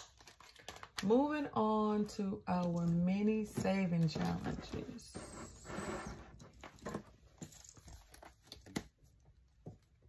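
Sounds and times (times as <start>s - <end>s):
paper and plastic rustling: 6.3s - 9.2s.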